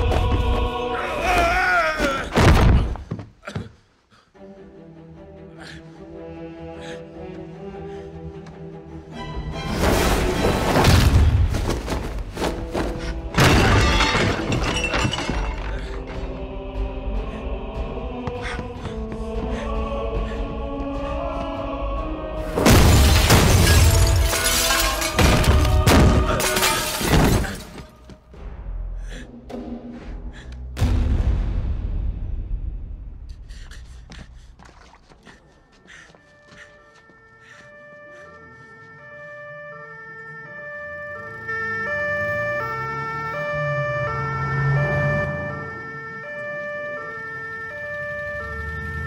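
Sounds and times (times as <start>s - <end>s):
background music: 0.0s - 2.2s, 4.0s - 49.0s
glass panes shattering: 13.4s - 16.0s, 22.6s - 27.8s
two-tone siren: 36.3s - 49.0s.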